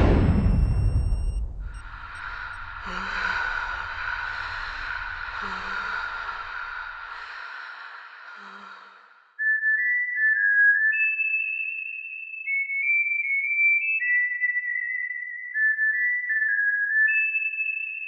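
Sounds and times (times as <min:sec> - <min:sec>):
low rumble: 0:00.0 - 0:07.1
hissing drone: 0:00.0 - 0:08.7
high whistle-like melody: 0:09.4 - 0:18.0.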